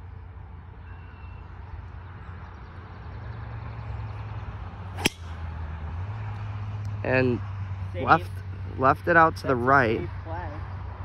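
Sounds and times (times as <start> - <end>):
mower engine humming: 5.0 - 5.4.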